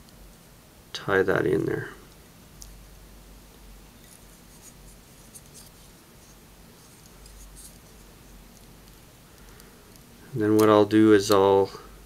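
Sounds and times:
low steady hum: 0.0s - 12.0s
scratchy rubbing and light ticks: 4.0s - 9.0s.

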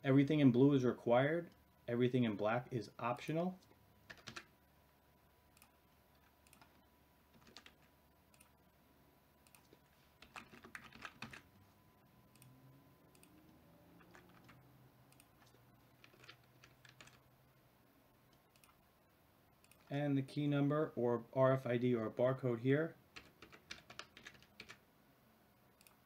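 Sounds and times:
typing on computer keyboard: 4.1s - 4.5s, 6.4s - 8.5s, 9.5s - 11.5s, 14.0s - 14.6s, 15.2s - 17.2s, 23.2s - 24.8s.

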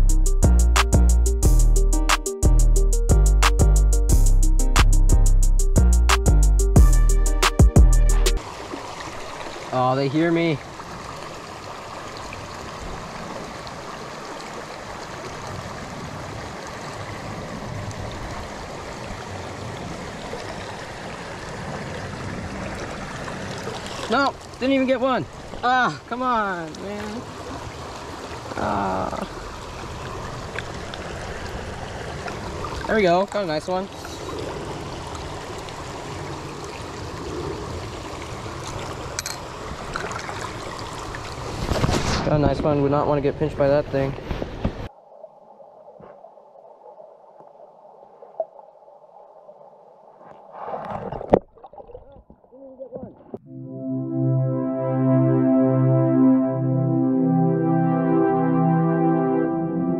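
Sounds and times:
creek water flowing over rocks: 8.4s - 41.8s, 44.9s - 52.5s.

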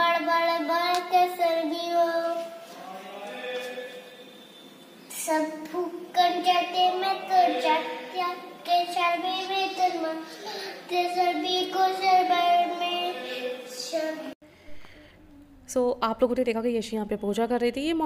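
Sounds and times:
girl chanting a prayer: 0.0s - 2.7s, 5.1s - 14.4s.

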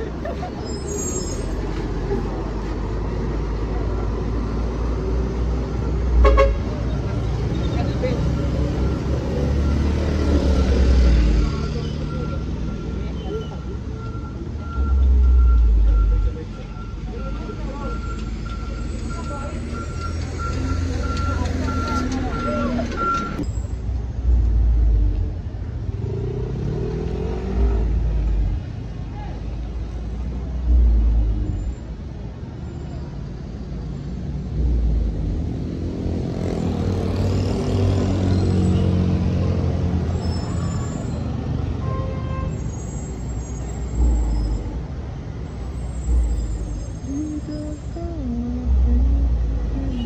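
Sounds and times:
heavy truck engine rumbling: 0.0s - 50.0s
passing cars: 0.0s - 50.0s
motorbike: 18.6s - 29.4s, 33.8s - 41.8s.

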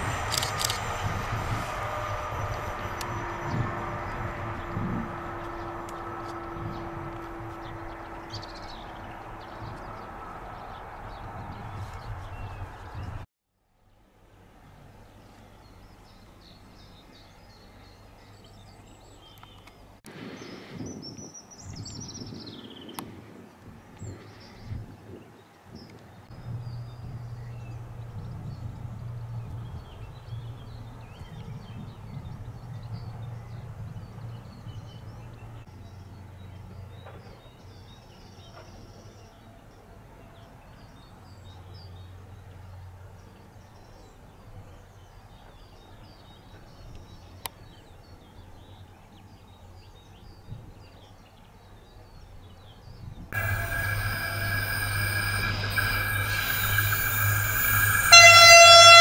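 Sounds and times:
low wavering hum: 0.0s - 12.4s, 26.3s - 31.0s, 53.4s - 59.0s
train horn: 1.0s - 9.8s, 53.4s - 59.0s.

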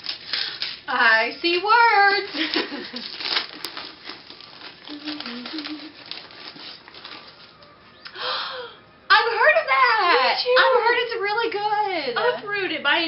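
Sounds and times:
wrapping paper rustling: 0.0s - 7.8s.

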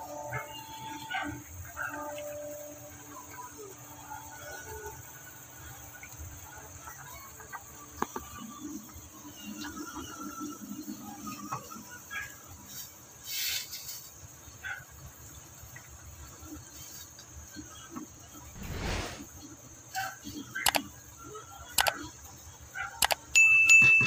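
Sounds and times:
short hiss: 18.5s - 19.3s.

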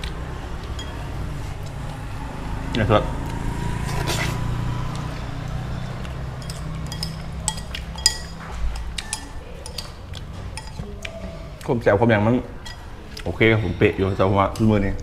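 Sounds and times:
spoon clinking against bowl: 0.6s - 1.1s, 6.4s - 10.8s, 12.6s - 12.9s
slurping noodles: 3.8s - 4.6s.

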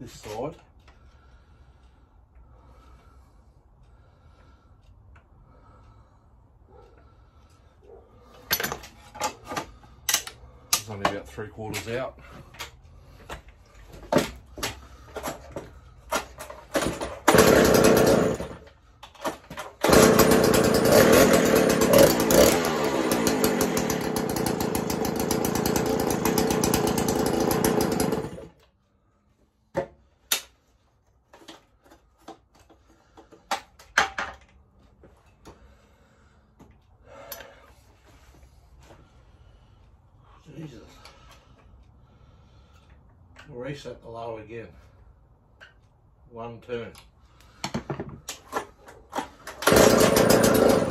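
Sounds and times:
chainsaw engine running: 16.8s - 18.7s, 19.8s - 28.6s, 49.5s - 50.9s.

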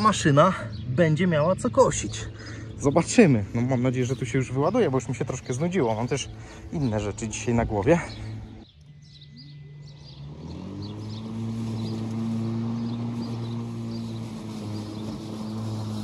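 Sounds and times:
electric mower motor humming: 6.1s - 16.0s.

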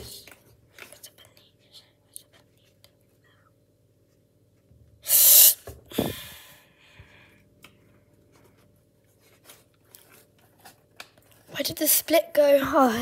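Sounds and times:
person breathing out sharply: 5.1s - 7.4s.

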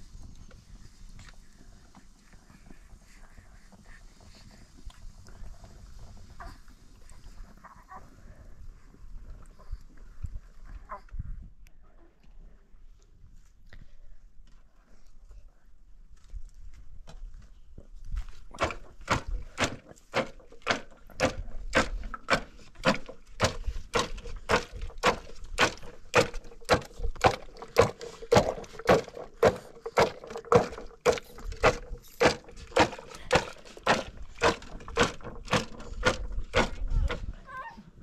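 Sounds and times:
pestle pounding in plastic bottle: 18.5s - 37.3s.

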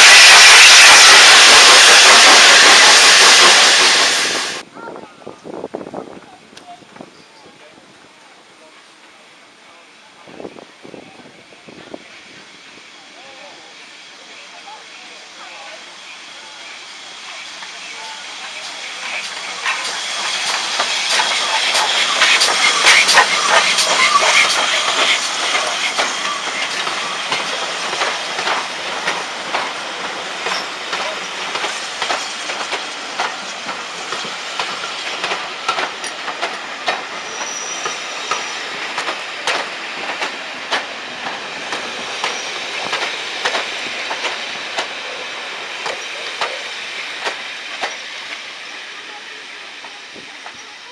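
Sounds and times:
train wheels clicking over rails: 0.0s - 4.6s, 17.0s - 50.9s.

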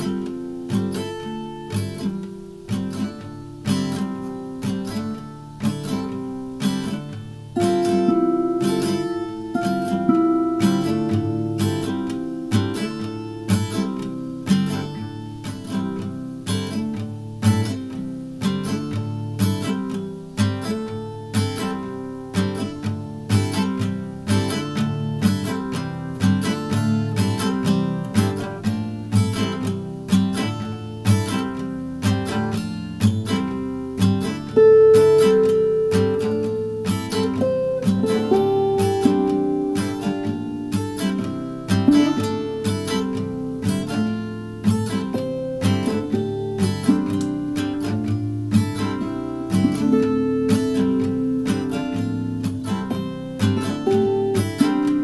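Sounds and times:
acoustic guitar music: 0.0s - 55.0s.

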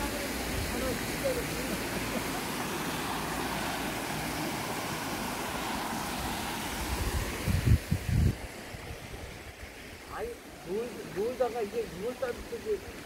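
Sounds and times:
stream water rushing: 0.0s - 13.0s
wind buffeting microphone: 6.7s - 9.6s.

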